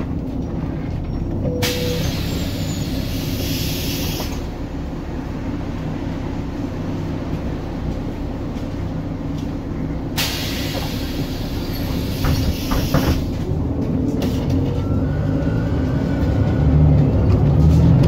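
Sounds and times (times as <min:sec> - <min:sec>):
bus diesel engine rumbling: 0:00.0 - 0:18.0
compressed air hissing: 0:01.6 - 0:04.5, 0:10.2 - 0:13.4.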